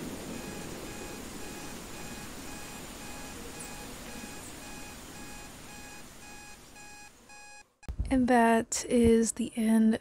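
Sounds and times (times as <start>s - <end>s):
steady rain: 0.0s - 7.2s
electronic alarm beeping: 0.0s - 7.9s.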